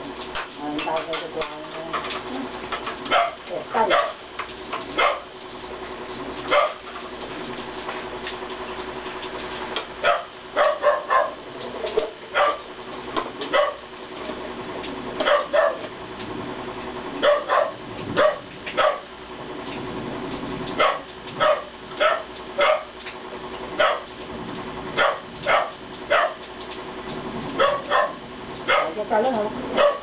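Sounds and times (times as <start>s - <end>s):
dog barking: 3.1s - 4.2s, 5.0s - 5.3s, 6.5s - 6.8s, 10.0s - 11.4s, 12.3s - 12.7s, 13.5s - 13.8s, 15.2s - 15.9s, 17.2s - 19.1s, 20.8s - 23.0s, 23.8s - 24.1s, 25.0s - 26.4s, 27.6s - 29.0s, 29.7s - 30.0s.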